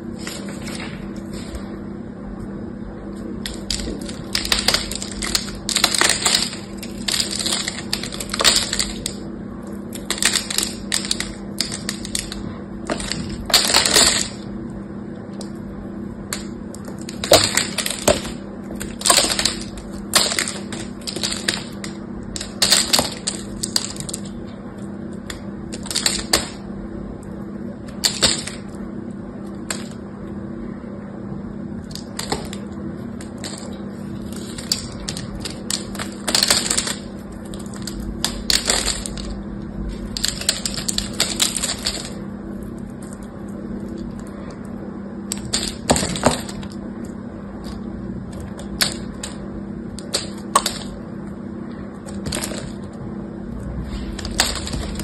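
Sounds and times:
steady low hum: 0.0 - 55.0
soap cracking and crunching: 3.4 - 14.5, 16.3 - 26.6, 31.8 - 51.0.

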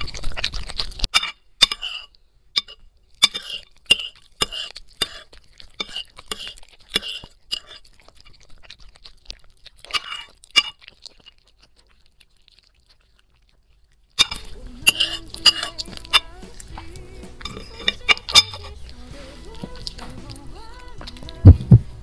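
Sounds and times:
dog chewing and crunching food: 0.0 - 22.0
clinks against ceramic plate: 1.1 - 5.2, 14.2 - 16.3, 17.4 - 18.7.

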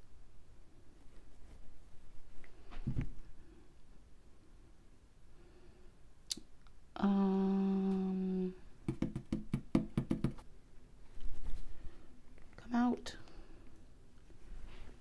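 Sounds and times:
person humming: 7.0 - 8.6.

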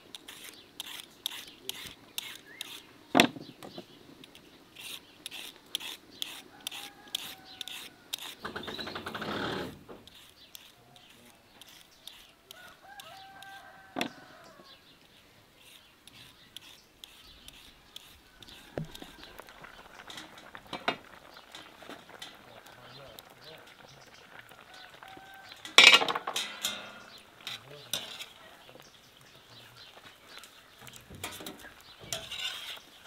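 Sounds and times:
peeler scraping carrots: 0.1 - 2.9, 4.2 - 14.8, 15.6 - 19.6, 30.8 - 33.0
rooster crowing: 6.5 - 8.2, 12.5 - 14.8, 24.6 - 25.9.

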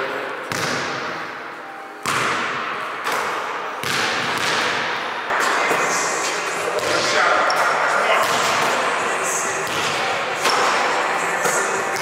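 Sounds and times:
basketballs bouncing on wooden floor: 2.0 - 5.0.

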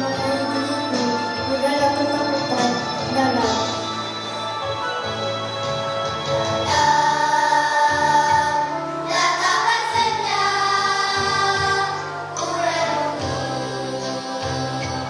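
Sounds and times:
children's choir singing: 6.2 - 15.0.

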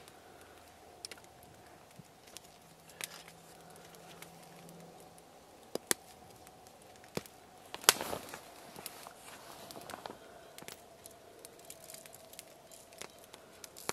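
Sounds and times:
foil crinkle: 0.0 - 13.9.

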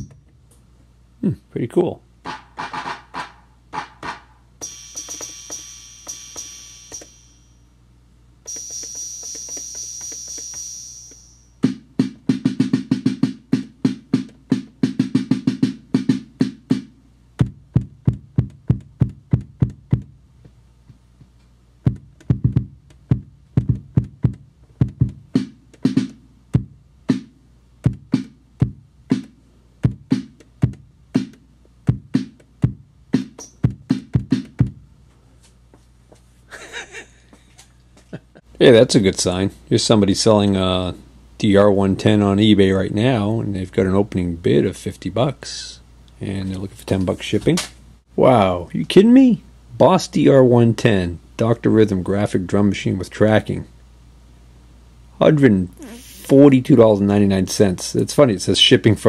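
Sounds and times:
drum machine beat: 2.2 - 7.1, 8.5 - 20.2, 21.8 - 34.9
bass-drum thumps: 11.6 - 20.2, 20.8 - 34.9.

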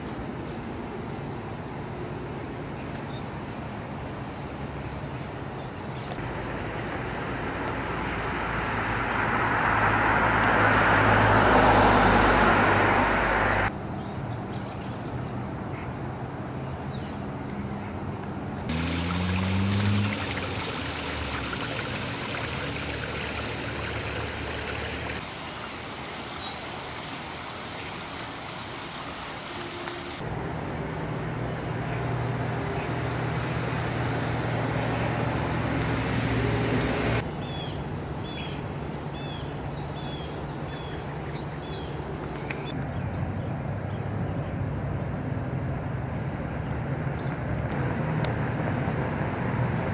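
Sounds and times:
car passing: 6.2 - 13.7, 18.7 - 38.4
birds chirping: 13.7 - 27.2, 27.8 - 28.6, 37.2 - 44.1
steady engine hum: 17.7 - 25.4
vehicle engine revving: 18.7 - 25.2.

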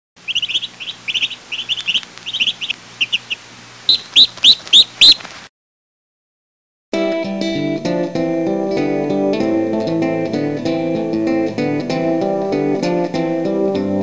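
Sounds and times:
loud rising bird calls: 0.2 - 5.3
birds chirping: 0.2 - 5.4
low steady hum: 0.2 - 5.4.

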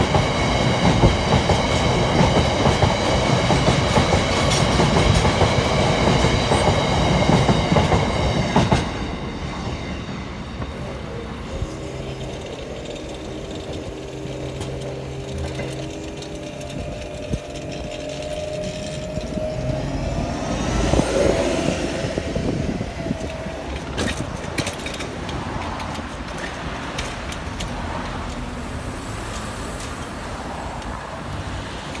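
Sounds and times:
freight train wagons clattering: 0.0 - 28.7
road vehicles passing: 0.0 - 32.0
crossing bell ringing: 4.0 - 24.8.

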